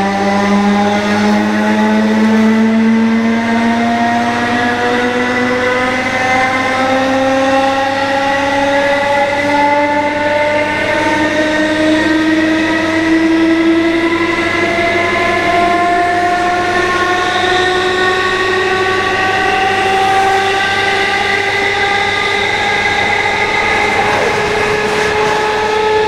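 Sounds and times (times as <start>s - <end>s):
electric train motors whining: 10.6s - 26.0s.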